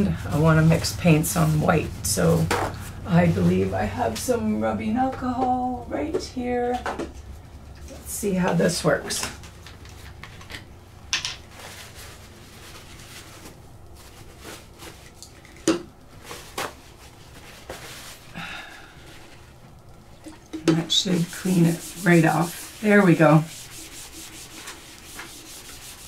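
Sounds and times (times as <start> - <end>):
paper towel rustle: 0.0 - 4.6, 11.4 - 15.4, 16.0 - 19.6, 20.9 - 26.0.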